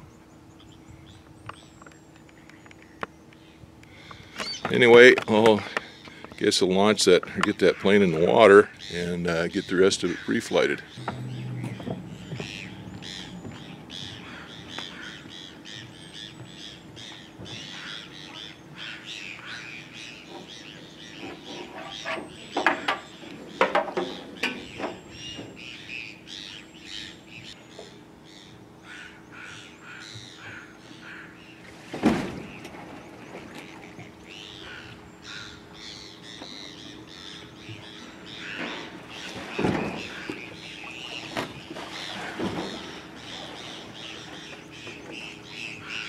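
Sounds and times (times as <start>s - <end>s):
faint low steady hum: 0.0s - 21.1s
birds chirping: 0.0s - 31.7s, 32.3s - 46.0s.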